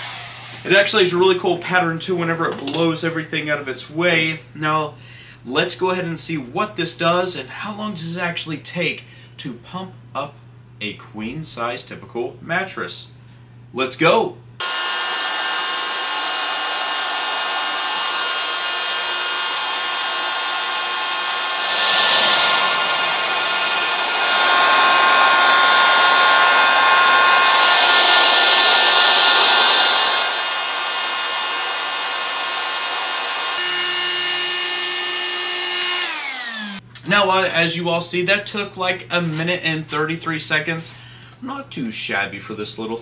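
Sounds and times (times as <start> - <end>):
inflator fan whine: 14.6 - 36.8.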